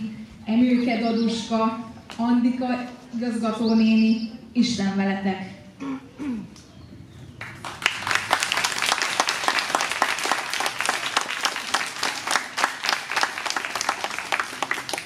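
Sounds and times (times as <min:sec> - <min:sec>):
audience applauding: 0:07.4 - 0:15.0.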